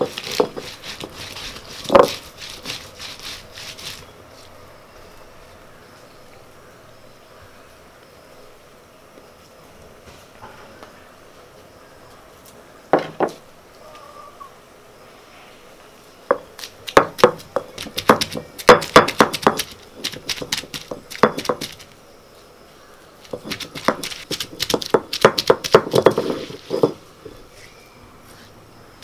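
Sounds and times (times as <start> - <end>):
stone roller knocking on stone: 0.0 - 2.8, 13.0 - 13.4, 16.3 - 21.8, 23.3 - 27.0.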